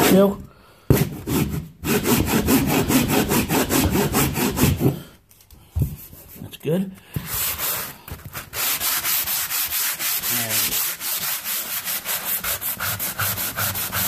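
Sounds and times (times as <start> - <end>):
sanding block on wall: 0.9 - 5.0, 7.2 - 14.0.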